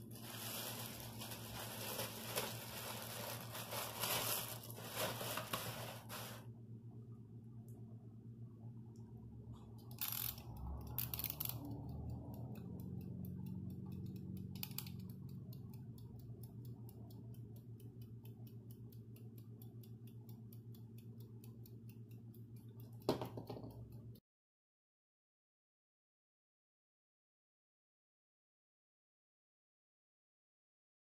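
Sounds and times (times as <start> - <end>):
kitchen timer ticking: 9.8 - 23.1, 23.7 - 24.2
timer dial twisting: 9.8 - 23.1
timer knocking on counter: 23.0 - 24.0.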